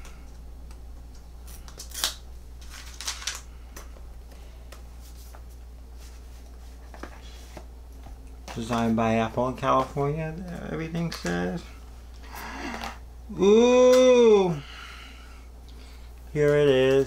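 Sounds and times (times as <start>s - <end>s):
packaging scraping and rustling: 1.8s - 3.5s.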